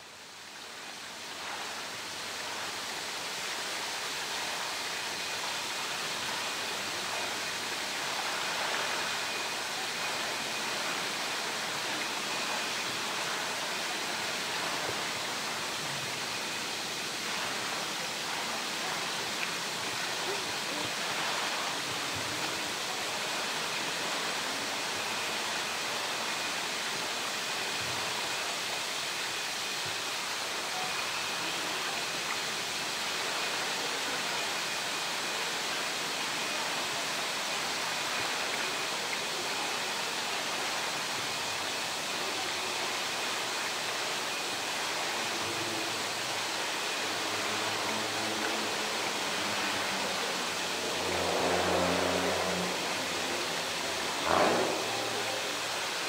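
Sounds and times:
faint high whine: 0.0s - 56.0s
water pouring from a pipe: 0.0s - 56.0s.

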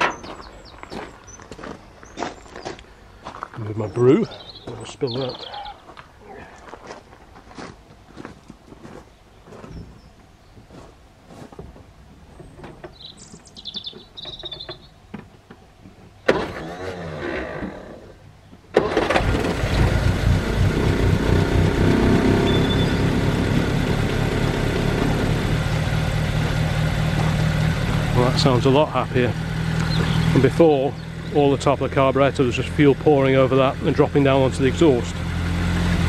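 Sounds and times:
engine cranking on starter: 16.2s - 18.1s, 18.7s - 30.7s
car engine running: 18.8s - 36.0s.

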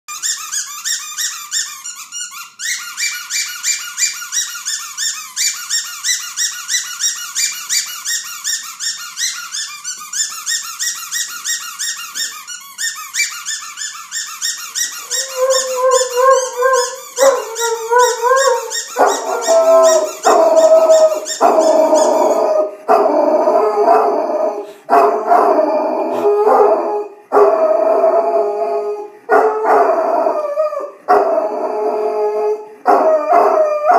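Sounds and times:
squeaky toy squeaking: 0.1s - 22.6s
dog howling: 15.0s - 33.9s.

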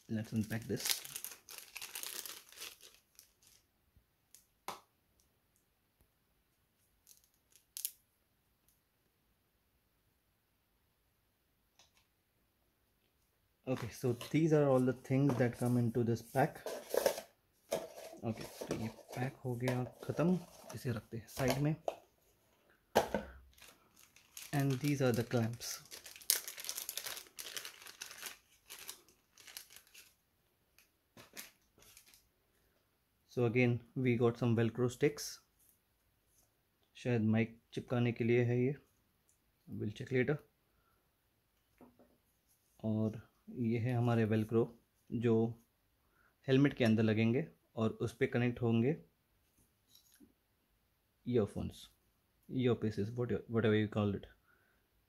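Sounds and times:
plastic packet rustling: 0.1s - 3.7s, 23.4s - 30.2s, 30.8s - 32.3s.

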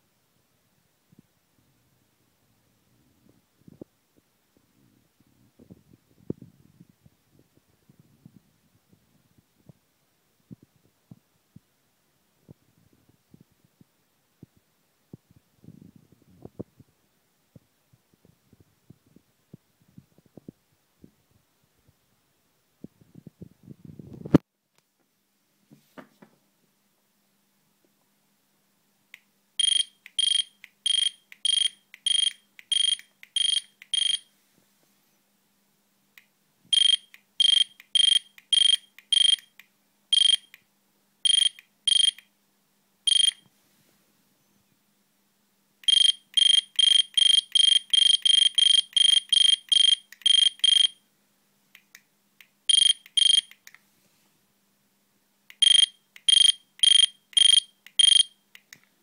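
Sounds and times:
barcode scanner beeps: 29.6s - 34.3s, 36.7s - 39.5s, 40.2s - 40.5s, 41.3s - 42.2s, 43.1s - 43.4s, 45.9s - 51.0s, 52.7s - 53.6s, 55.6s - 58.4s.

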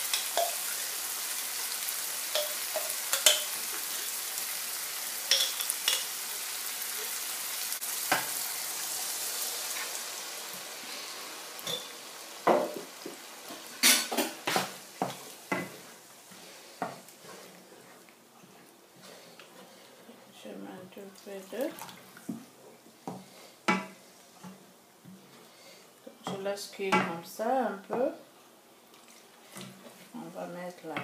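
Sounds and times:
vegetables sizzling in a pan: 0.0s - 19.9s.

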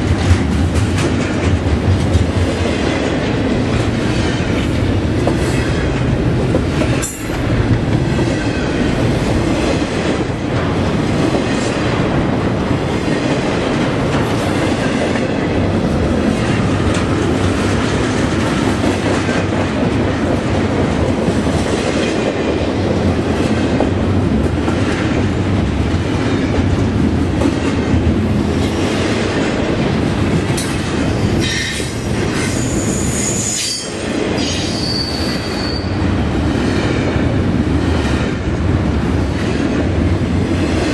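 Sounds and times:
train wheels rumbling on rail: 0.0s - 40.9s
high wheel squeal: 32.5s - 36.0s.

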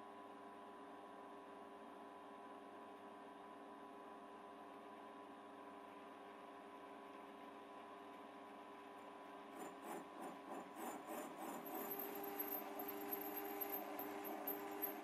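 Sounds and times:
lathe motor hum: 9.6s - 15.0s
tool scraping workpiece: 9.6s - 15.0s
thin high whine: 11.1s - 15.0s.

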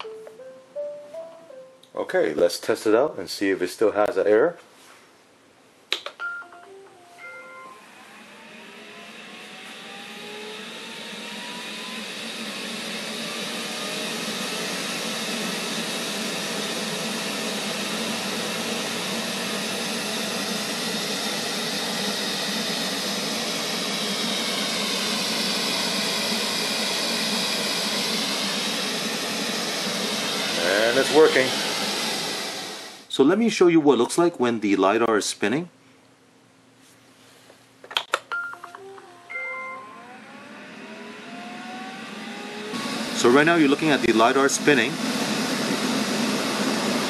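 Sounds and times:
robot vacuum motor humming: 7.3s - 33.1s, 39.3s - 47.0s.

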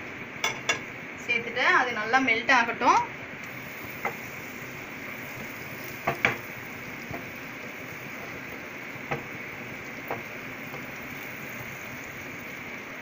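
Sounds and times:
butter sizzling in a pan: 3.4s - 13.0s.

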